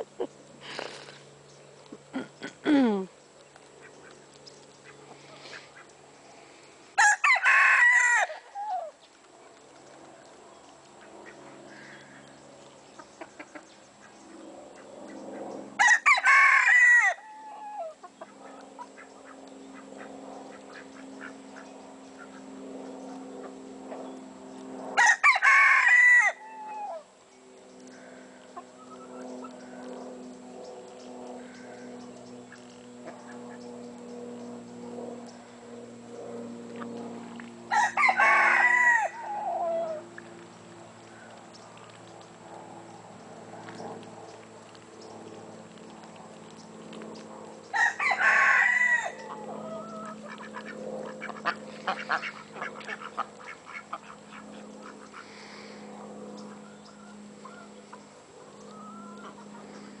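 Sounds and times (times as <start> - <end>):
low steady hum: 0.0 - 60.0
rooster crowing: 7.0 - 8.9, 15.8 - 17.9, 25.0 - 27.0, 37.7 - 40.0, 47.7 - 50.0.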